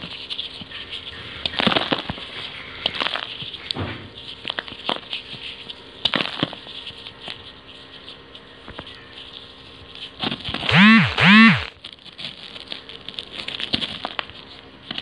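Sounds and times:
rising and falling pitched sounds: 10.7s - 11.7s.

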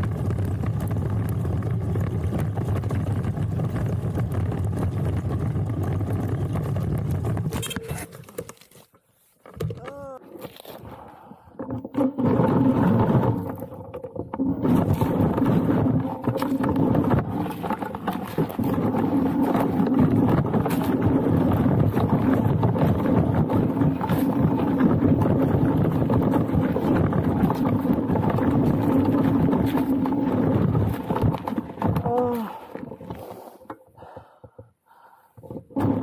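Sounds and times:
tyre grinding on gravel: 12.0s - 33.6s.

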